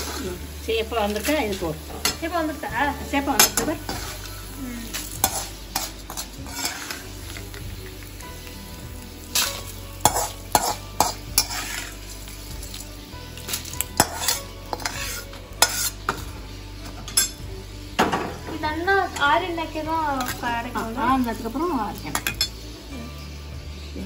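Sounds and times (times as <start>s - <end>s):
oil sizzling: 0.0s - 24.0s
metal skimmer scraping a pan: 1.0s - 4.3s, 5.0s - 7.6s, 9.3s - 12.8s, 13.4s - 17.5s.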